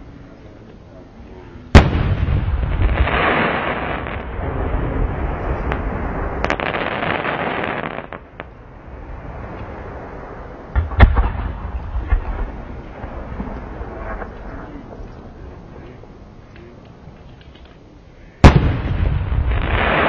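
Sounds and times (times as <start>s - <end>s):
firework crackling and pops: 1.8s - 8.6s, 18.4s - 20.0s
firework shell bang: 10.8s - 12.3s.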